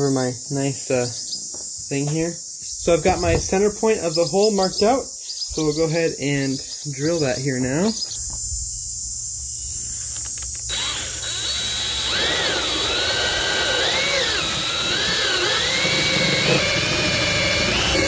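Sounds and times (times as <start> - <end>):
cordless drill whining through plastic: 10.0 - 18.0.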